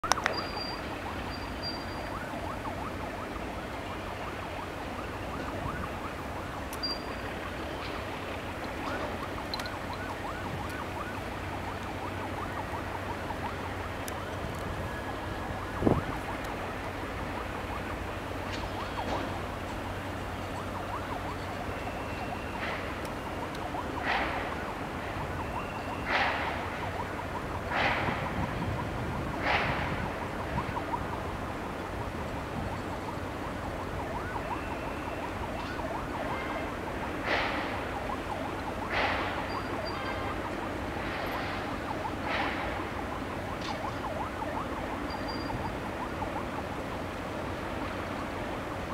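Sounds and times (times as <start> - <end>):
distant road traffic hum: 0.0 - 48.9.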